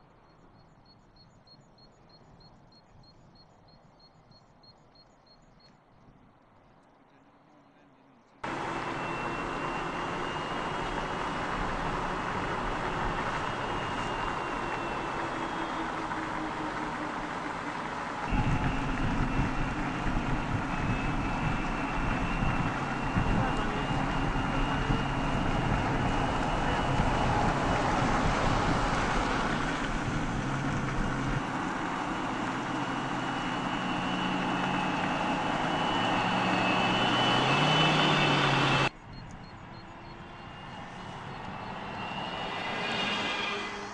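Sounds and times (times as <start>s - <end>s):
faint high whine: 0.0s - 30.0s, 31.8s - 43.9s
tyre and road noise: 8.4s - 43.9s
tyre and wind noise: 18.3s - 31.5s.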